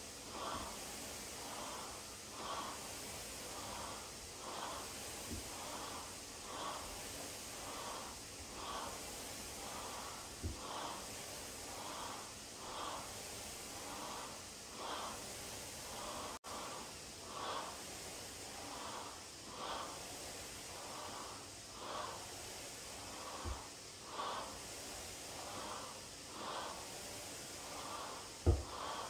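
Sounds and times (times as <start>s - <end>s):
heavy rhythmic breathing: 0.0s - 29.0s
dull thud: 28.4s - 28.8s.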